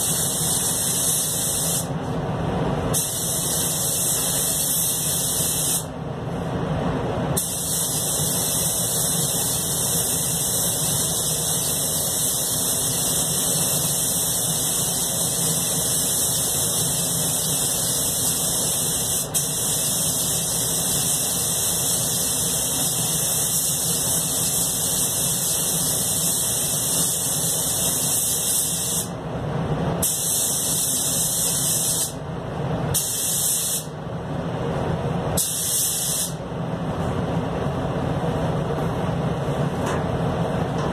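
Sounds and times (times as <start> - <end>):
spray gun hissing: 0.0 - 1.9, 2.9 - 5.9, 7.4 - 29.1, 30.0 - 32.2, 32.9 - 33.9, 35.4 - 36.4.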